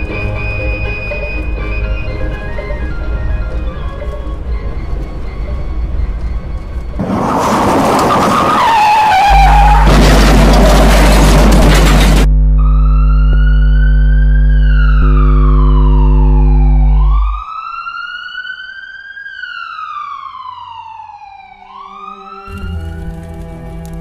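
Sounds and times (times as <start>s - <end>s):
music bed: 0.0s - 7.0s
siren wailing: 0.0s - 9.9s, 12.5s - 23.2s
loud low steady drone: 11.7s - 17.4s.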